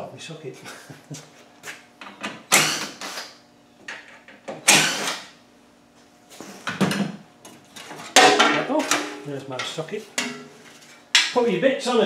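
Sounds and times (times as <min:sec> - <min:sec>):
hand tools scraping and rattling: 0:07.7 - 0:11.1.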